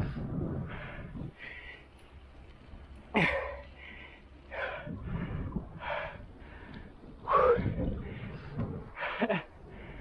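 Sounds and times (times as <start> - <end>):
person breathing hard: 0.0 - 1.9, 3.2 - 10.0.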